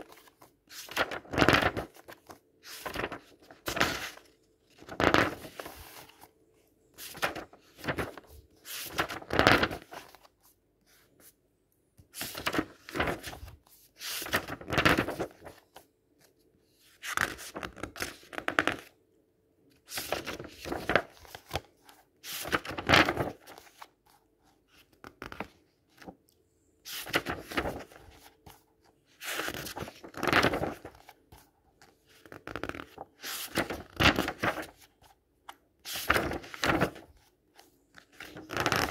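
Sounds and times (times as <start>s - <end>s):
book pages flipping: 0.0s - 11.4s, 12.0s - 16.4s, 17.0s - 18.9s, 19.8s - 38.9s.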